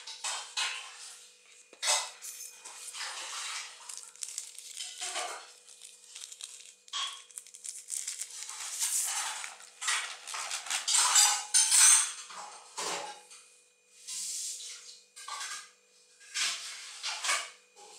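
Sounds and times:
plastic sleeve crinkling: 2.2s - 11.2s.

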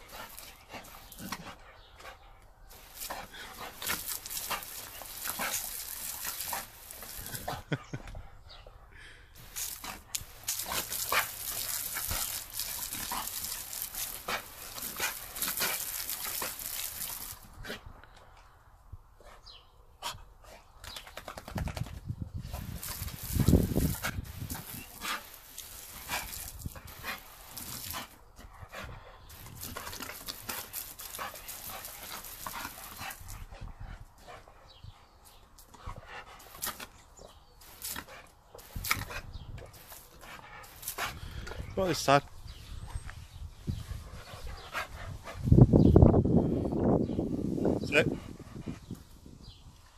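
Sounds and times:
water spattering on dog: 0.0s - 1.4s, 2.7s - 7.7s, 9.4s - 17.6s, 22.5s - 28.2s, 29.3s - 33.5s, 36.4s - 37.0s, 37.6s - 41.2s
garden hose spraying: 0.0s - 7.9s, 9.4s - 18.0s, 21.2s - 49.9s.

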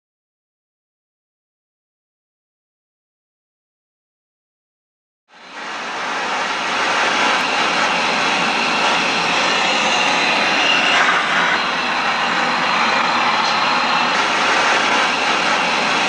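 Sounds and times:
gas burner roaring: 5.3s - 16.0s.

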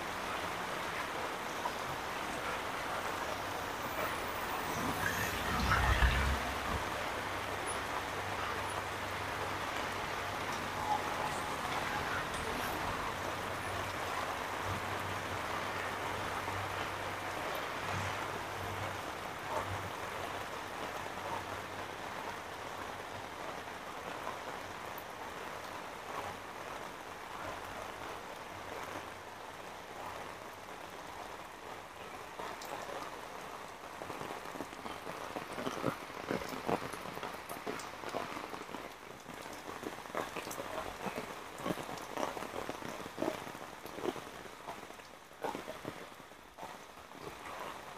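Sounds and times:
heavy rain on pavement: 0.0s - 47.9s.

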